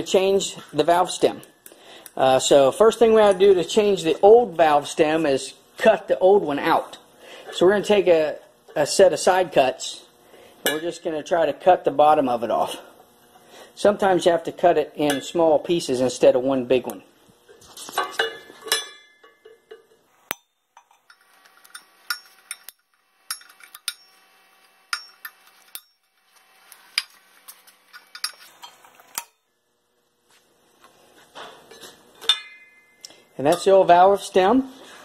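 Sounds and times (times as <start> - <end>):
side cutters clinking on metal rim: 18.0 - 24.2, 24.9 - 26.1, 31.7 - 33.8.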